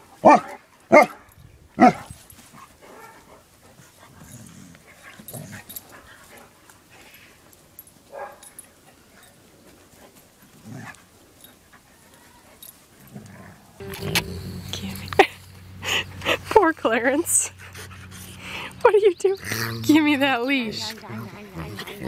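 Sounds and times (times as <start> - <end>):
dog barking: 0.2 - 2.0, 8.1 - 8.5.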